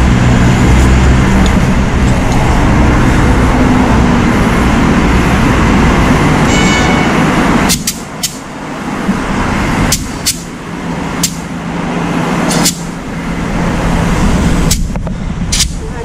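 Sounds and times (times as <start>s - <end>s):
compressed air hissing into tyre: 9.9s - 10.5s, 12.5s - 13.0s.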